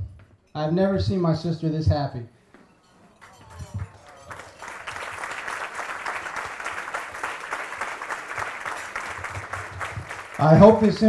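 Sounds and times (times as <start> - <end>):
crowd applauding: 3.1 - 11.0.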